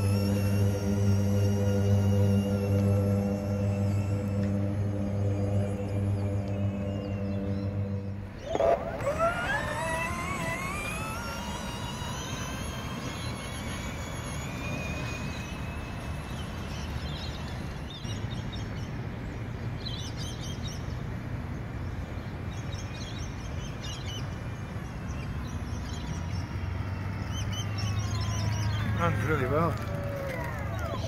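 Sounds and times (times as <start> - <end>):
steady low rumble: 0.0 - 8.9.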